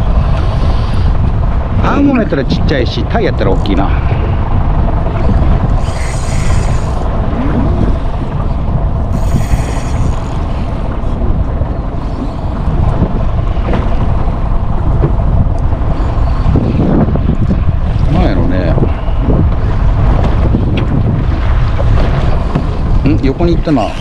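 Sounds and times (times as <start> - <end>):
water noise: 0.0 - 24.0
wind buffeting microphone: 0.0 - 24.0.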